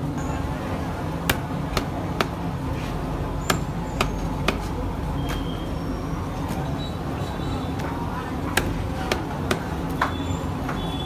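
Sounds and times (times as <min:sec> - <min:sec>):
knife chopping on wooden block: 0:01.3 - 0:02.4, 0:03.4 - 0:04.7, 0:08.5 - 0:10.1.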